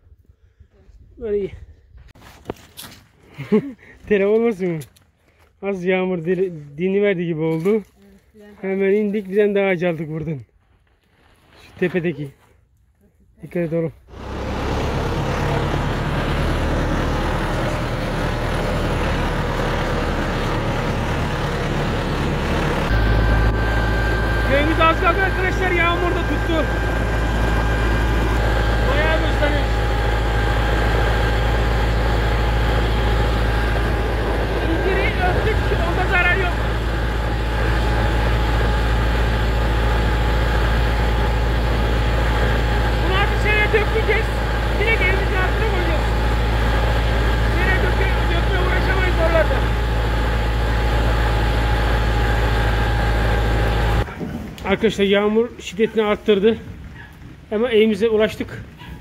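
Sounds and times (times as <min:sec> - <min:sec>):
tractor diesel engine running: 0:14.0 - 0:58.9.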